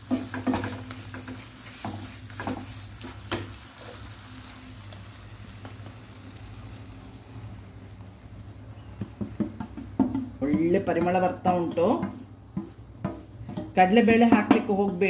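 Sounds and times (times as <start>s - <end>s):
paste sizzling in oil: 0.0s - 7.9s, 10.5s - 14.0s
wooden spatula scraping pan: 0.1s - 3.2s, 10.4s - 15.0s.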